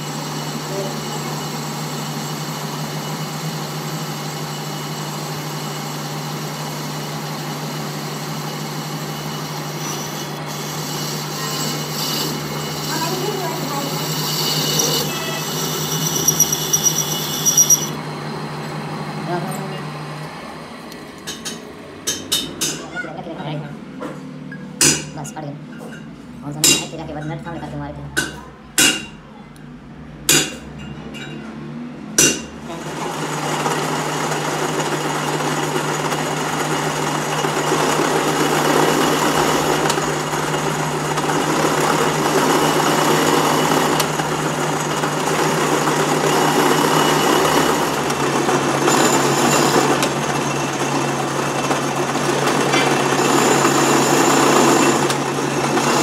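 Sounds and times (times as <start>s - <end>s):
metal lathe cutting: 0.0s - 19.6s, 32.2s - 56.0s.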